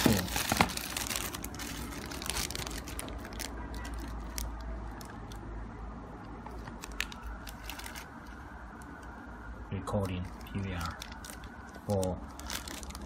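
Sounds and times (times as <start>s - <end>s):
plastic bag crinkling: 0.0s - 5.4s, 6.5s - 8.4s, 10.1s - 13.0s
low steady hum: 0.0s - 13.0s.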